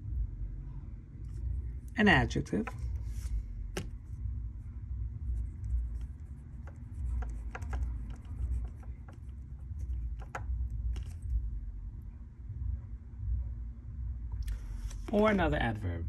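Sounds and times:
steady low hum: 0.0 - 16.0
pen scratching on paper: 5.3 - 11.3.

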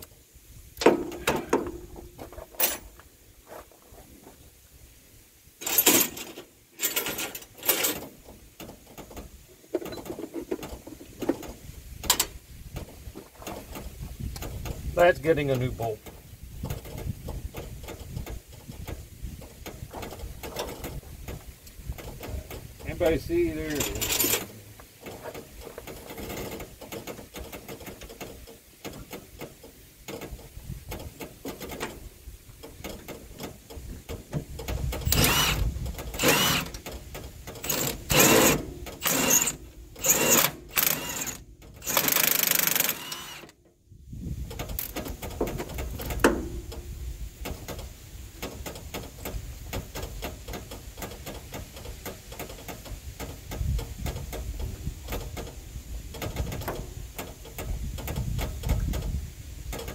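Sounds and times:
tool clatter: 0.8 - 3.7, 5.6 - 12.3, 23.7 - 32.0, 32.7 - 43.5
power wrench bursts: 23.7 - 24.5, 35.0 - 36.8, 37.6 - 43.6.

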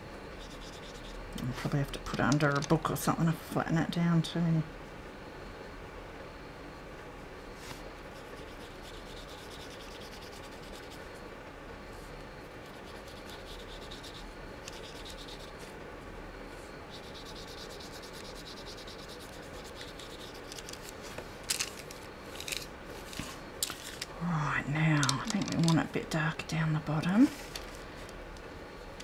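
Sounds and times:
brush scratching on paper: 0.4 - 1.2, 8.2 - 11.0, 12.7 - 15.6, 16.9 - 20.8.

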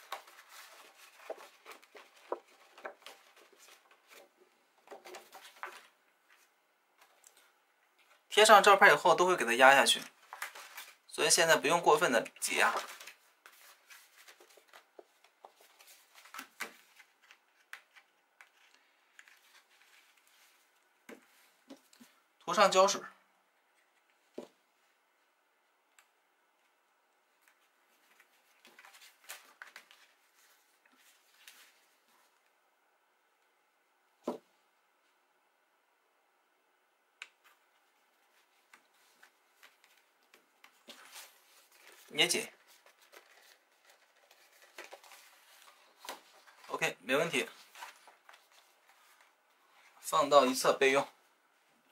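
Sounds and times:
paper card rustling and crackling: 0.0 - 7.2, 10.0 - 11.1, 12.6 - 22.1, 27.4 - 32.2, 38.2 - 46.7, 47.4 - 49.4.

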